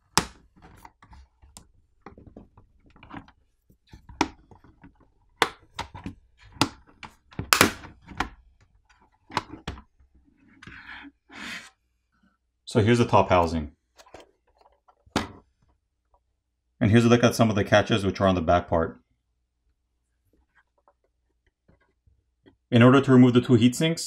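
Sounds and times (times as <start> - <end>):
plastic scraping: 0.0 - 11.1
plastic catches clicking and snapping: 0.1 - 8.4.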